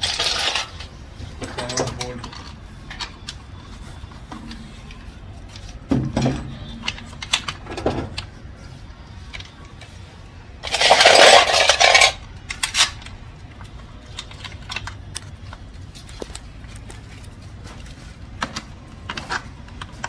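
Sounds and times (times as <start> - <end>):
loud clatter of metal: 0.0 - 0.9, 10.6 - 13.0
metal tools clinking: 0.0 - 4.9, 10.6 - 13.2.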